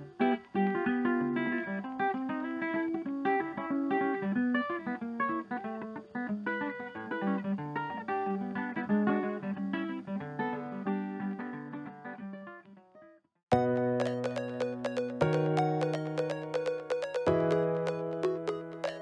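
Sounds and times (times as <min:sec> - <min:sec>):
plucked melody over bass line: 0:13.5 - 0:19.0.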